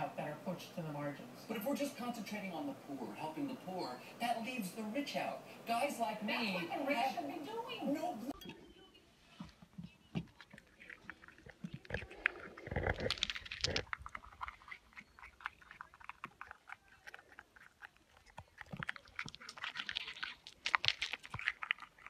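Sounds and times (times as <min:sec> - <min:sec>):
squirrel gnawing nuts: 0:09.3 - 0:22.0.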